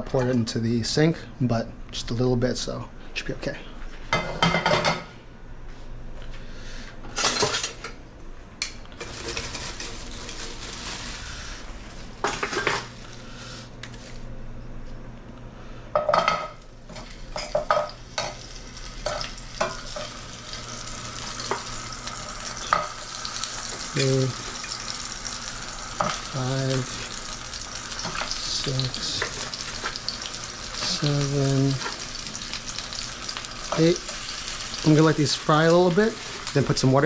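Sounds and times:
dumplings sizzling in hot oil: 17.0s - 36.8s.

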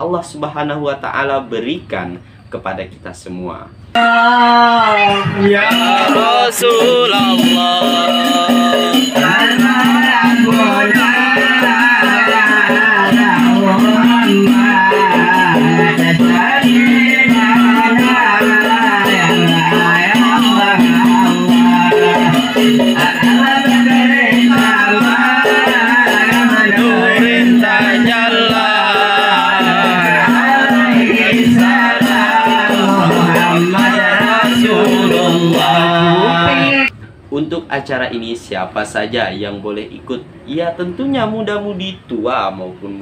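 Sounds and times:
men singing with lead voice: 4.0s - 36.9s
frame drums beating quickly: 5.2s - 36.5s.

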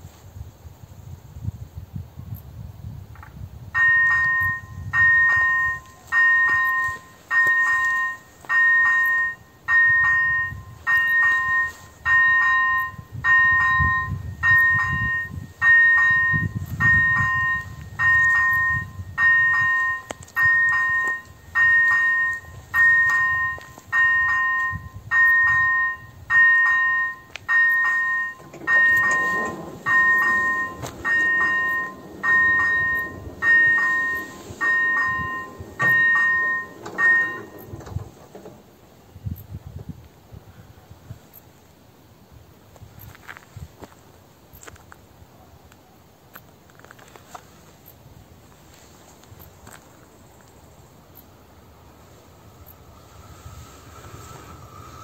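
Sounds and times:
low hum of barriers: 0.0s - 55.0s
electronic crossing bell ringing: 3.8s - 38.0s.

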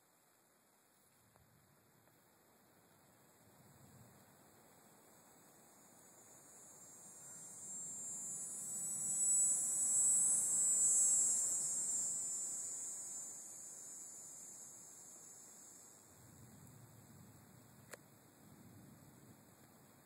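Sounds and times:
cicada buzzing: 5.7s - 16.2s.

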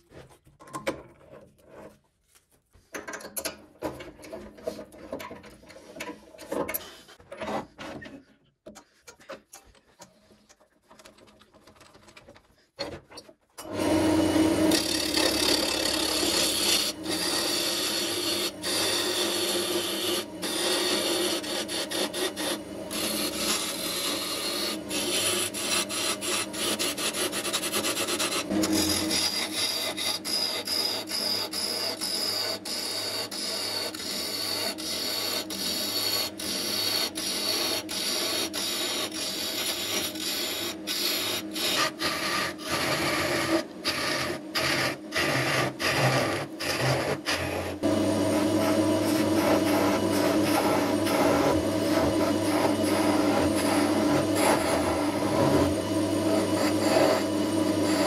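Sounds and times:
wood lathe turning tool cutting: 13.6s - 58.0s.

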